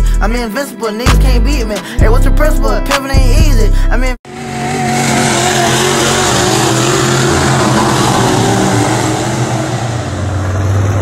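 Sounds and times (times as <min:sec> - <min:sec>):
race car engines roaring: 0:04.3 - 0:11.0.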